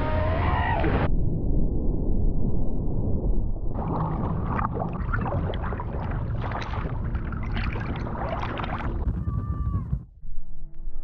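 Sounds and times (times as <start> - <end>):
low rumble: 0.2 - 11.0
water splashing and sloshing: 3.8 - 9.3.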